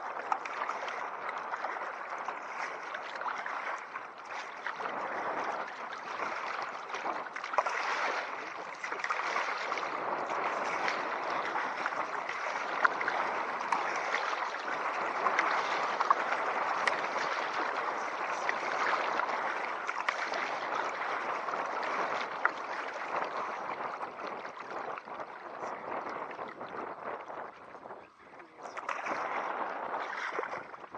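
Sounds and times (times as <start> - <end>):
churning river water splashing: 0.0 - 30.9
sharp splashes: 5.7 - 23.8.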